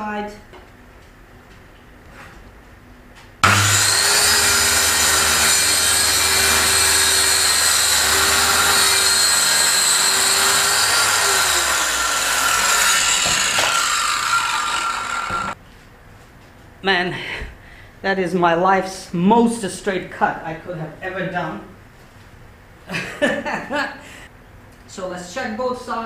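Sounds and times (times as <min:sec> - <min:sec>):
circular saw cutting plywood: 0:03.4 - 0:15.6.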